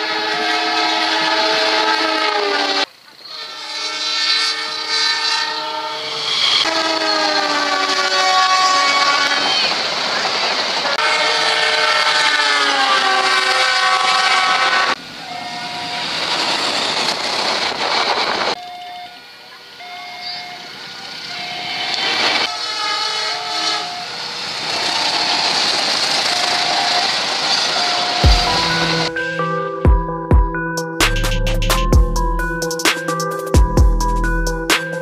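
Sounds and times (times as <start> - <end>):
train air horn blasts: 0.0 - 9.7, 10.8 - 16.0, 22.4 - 24.3, 26.2 - 29.8
train rumble and rail clatter: 4.4 - 29.2.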